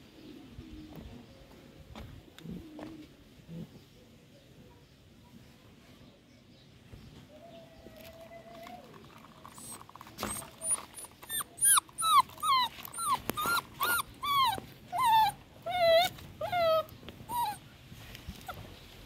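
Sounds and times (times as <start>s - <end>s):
puppy whimpering and yelping: 9.5s - 17.7s.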